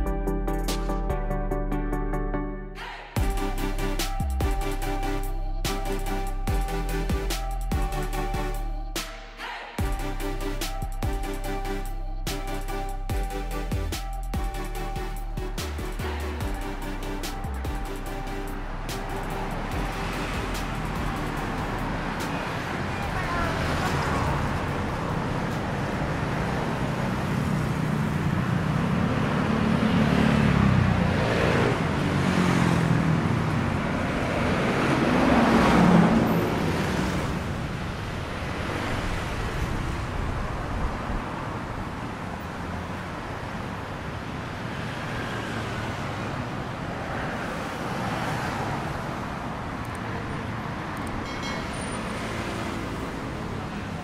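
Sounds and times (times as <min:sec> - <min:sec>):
low engine drone: 0:00.0 - 0:29.9
road traffic: 0:00.0 - 0:54.0
vehicle passing close: 0:14.9 - 0:54.0.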